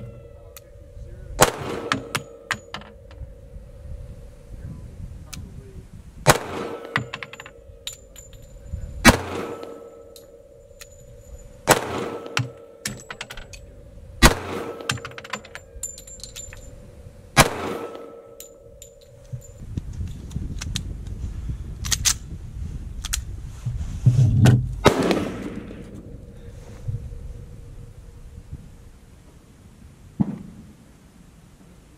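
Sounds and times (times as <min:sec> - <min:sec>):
pistol shots with echo: 0:01.4 - 0:02.7, 0:06.2 - 0:07.4, 0:09.0 - 0:10.1, 0:11.7 - 0:13.1, 0:14.2 - 0:15.2, 0:17.4 - 0:18.3, 0:24.8 - 0:25.9
light metallic clinks: 0:06.8 - 0:08.9, 0:09.5 - 0:13.8, 0:14.6 - 0:16.9, 0:17.9 - 0:19.7.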